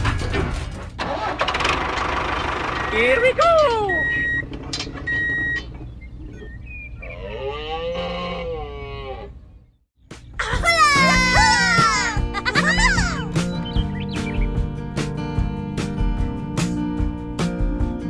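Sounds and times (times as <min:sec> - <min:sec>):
tractor engine running: 0:00.0 - 0:06.2.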